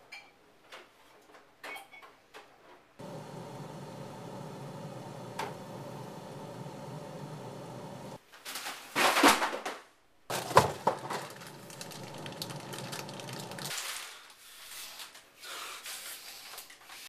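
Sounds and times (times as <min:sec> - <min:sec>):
appliance hum: 0:03.0 - 0:08.2, 0:10.3 - 0:13.7
frozen packages knocking: 0:10.3 - 0:13.8
plastic bag crinkling: 0:10.3 - 0:14.2.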